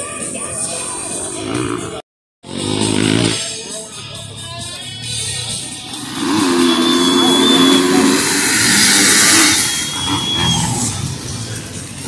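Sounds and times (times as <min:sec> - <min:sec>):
dirt bike engines revving: 0:01.4 - 0:03.6, 0:05.8 - 0:12.0.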